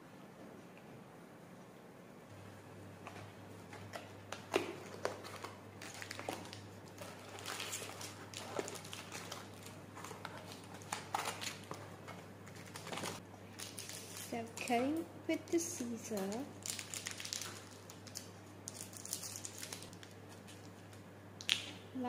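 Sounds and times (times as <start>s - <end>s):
packaging crinkling: 3.0s - 14.6s, 16.1s - 21.0s.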